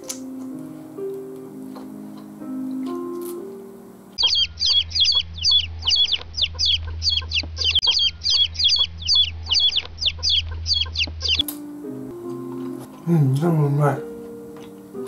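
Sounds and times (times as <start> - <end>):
bird chirping: 4.2 - 11.6
low hum: 4.2 - 12.1.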